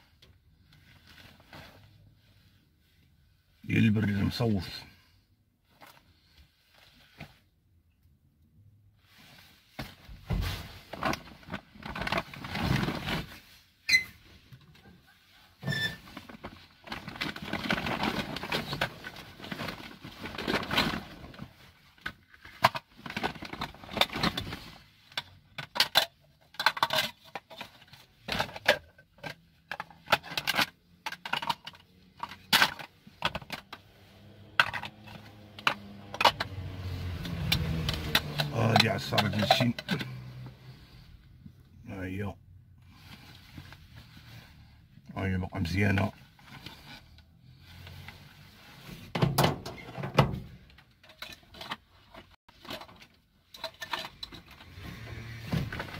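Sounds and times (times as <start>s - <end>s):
plastic bags and fabric rustling: 9.0s - 25.4s
objects clicking knocking and scraping: 22.0s - 33.9s, 34.5s - 40.2s.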